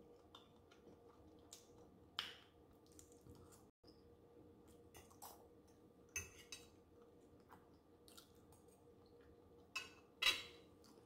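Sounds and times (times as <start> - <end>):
soft chewing: 0.0 - 3.8, 4.6 - 10.0.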